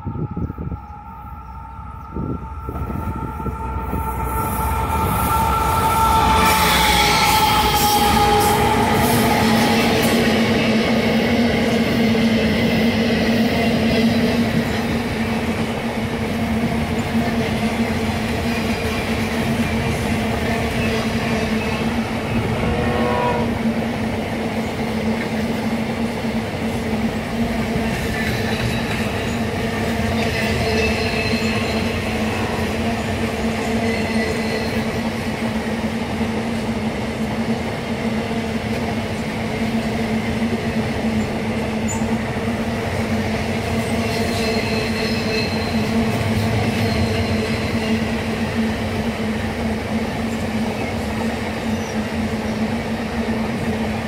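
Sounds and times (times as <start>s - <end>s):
train horn: 0.0s - 10.4s, 20.5s - 24.0s, 43.8s - 48.3s.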